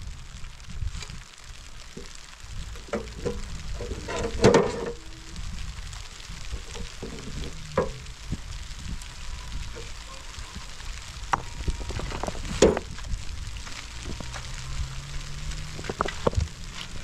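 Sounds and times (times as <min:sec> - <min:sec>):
rocks knocking in metal wheelbarrow: 0:01.9 - 0:05.0, 0:06.5 - 0:08.1, 0:11.2 - 0:14.4.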